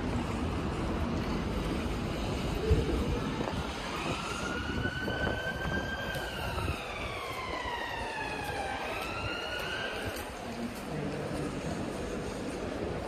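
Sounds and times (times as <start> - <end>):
low rumble of street traffic: 0.0 - 13.0
emergency vehicle siren wailing: 2.5 - 10.5.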